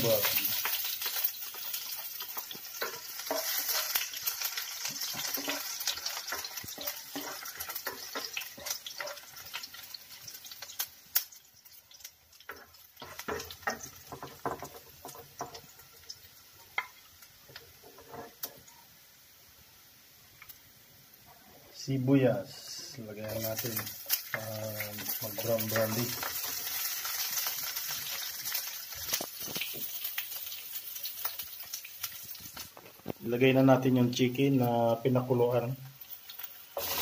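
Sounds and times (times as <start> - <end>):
garlic sizzling in oil: 0.0 - 37.0
spatula scraping pan: 2.3 - 9.6, 36.8 - 37.0.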